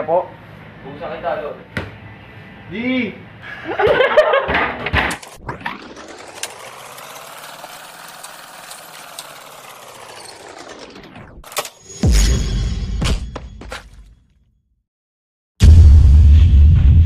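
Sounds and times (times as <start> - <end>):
rising and falling sweep: 5.1 - 11.4
sharp hit: 11.9 - 13.6
deep boom dropping in pitch: 15.6 - 17.0.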